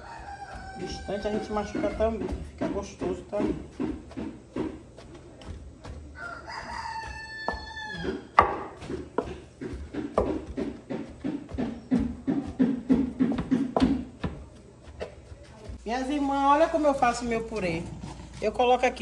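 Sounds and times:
rooster crowing: 0.0 - 2.4, 6.2 - 8.4
masher knocking potatoes in metal pot: 0.8 - 6.0, 7.0 - 14.4.

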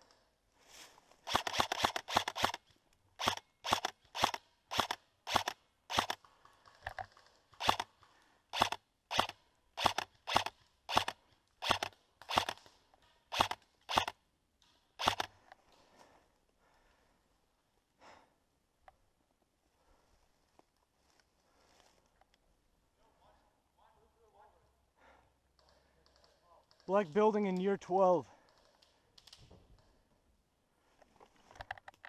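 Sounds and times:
airsoft rifle shots: 1.3 - 2.6, 3.2 - 6.2, 7.6 - 7.9, 8.5 - 12.7, 13.3 - 14.2, 15.0 - 15.3.

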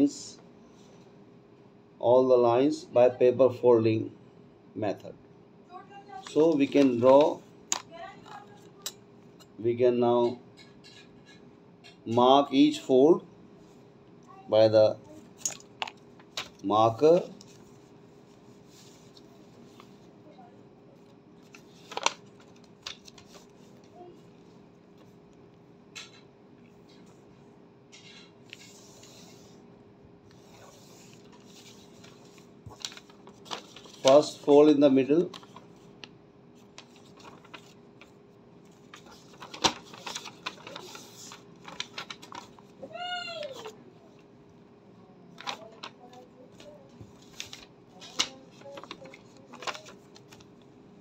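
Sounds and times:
paper rustling: 15.8 - 20.1, 20.9 - 25.2, 30.3 - 44.2, 45.3 - 50.7.

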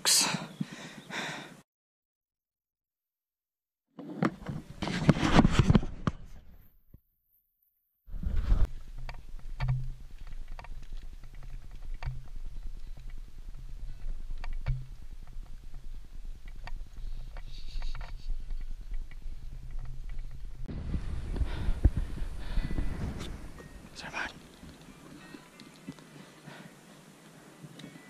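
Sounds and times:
wind buffeting microphone: 18.3 - 24.7.

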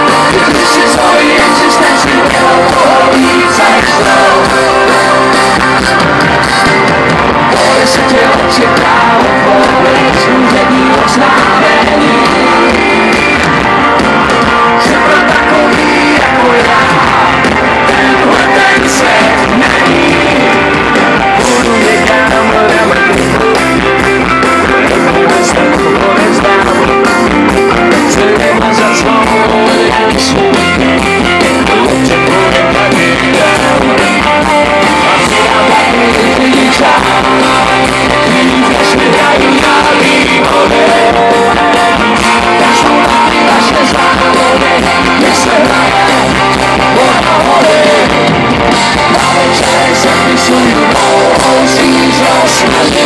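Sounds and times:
live rock band playing loudly: 0.0 - 53.0.

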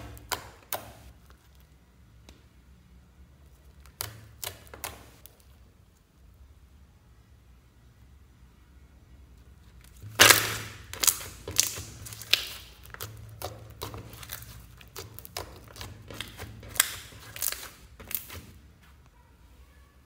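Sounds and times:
slime squished by hand: 9.8 - 18.7.

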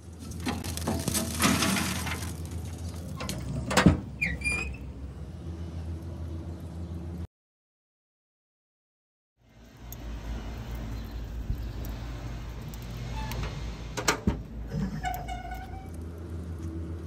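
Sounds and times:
charcoal tumbling into grill: 0.0 - 4.1
metal on metal squeak: 4.2 - 4.9, 13.1 - 13.6, 14.8 - 16.0.

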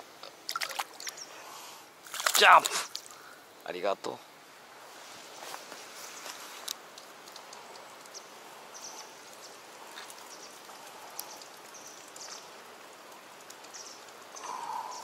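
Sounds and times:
stream trickling over rock: 0.0 - 3.5, 5.7 - 14.6
light ticks: 6.6 - 8.3, 8.9 - 14.4.

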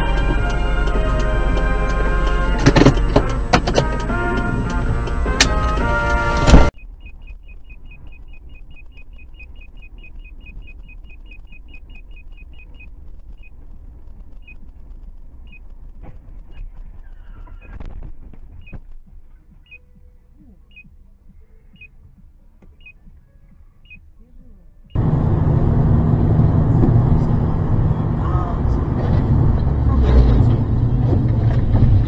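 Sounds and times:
road and engine rumble: 0.0 - 32.0
crunching impact noise: 6.4 - 19.7
high electronic beep: 6.8 - 13.5.

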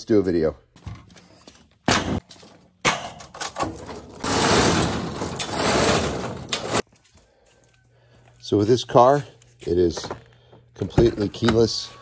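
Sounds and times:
loud rough scraping: 3.6 - 6.8.

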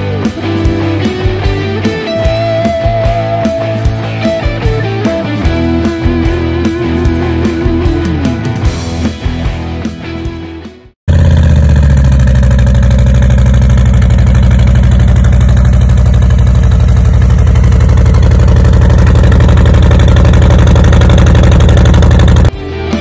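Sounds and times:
motorcycle engine idling: 11.1 - 22.5.

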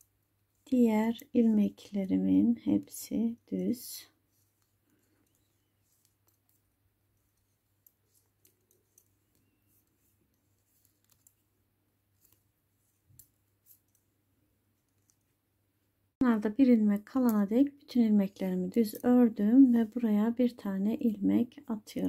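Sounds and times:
knitting needles clicking: 3.4 - 11.5, 12.1 - 14.1, 14.8 - 15.3.

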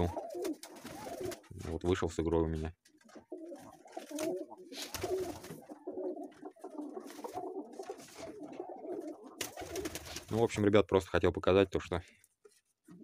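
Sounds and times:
pigeons cooing: 0.0 - 1.6, 3.0 - 10.2
birds rustling: 0.0 - 1.8, 2.8 - 10.6.

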